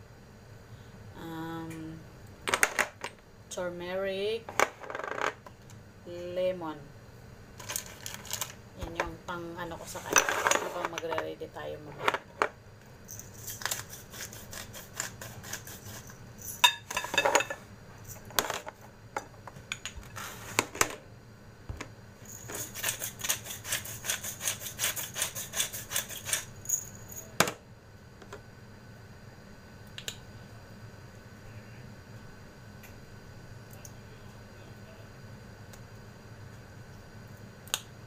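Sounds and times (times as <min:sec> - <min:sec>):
spice grinder clicking and rasping: 0:13.1 - 0:16.6, 0:22.3 - 0:26.9.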